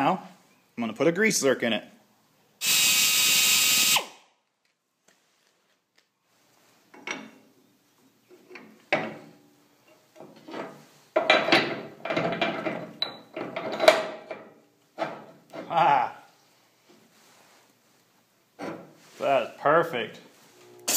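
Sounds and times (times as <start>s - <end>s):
steel parts knocking and scraping: 9.9s - 15.7s.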